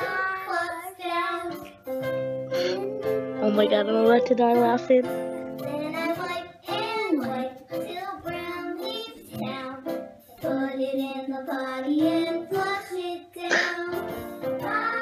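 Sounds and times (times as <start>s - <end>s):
backing music: 0.0s - 15.0s
boy singing into microphone: 2.6s - 5.0s, 5.6s - 9.8s, 10.4s - 15.0s.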